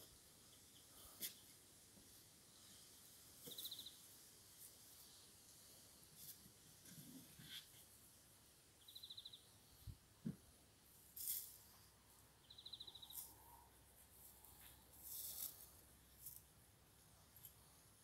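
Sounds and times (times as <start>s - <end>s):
short scraping rustles: 14.2s - 16.4s.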